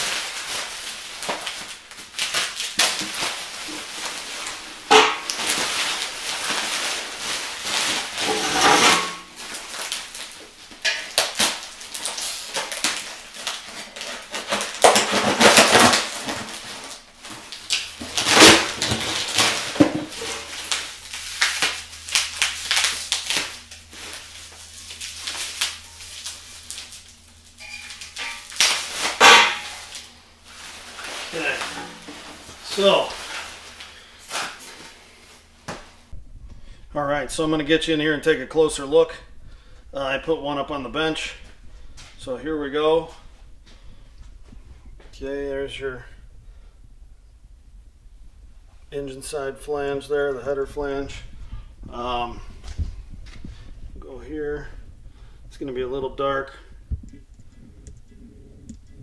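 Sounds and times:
bubble wrap crinkling: 0.0 - 36.6
metal tubes clinking: 27.6 - 28.6.

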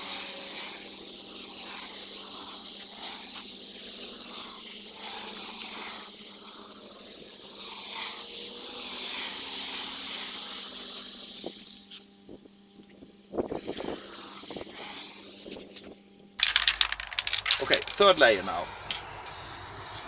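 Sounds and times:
aerosol spray can hissing: 0.0 - 15.8.

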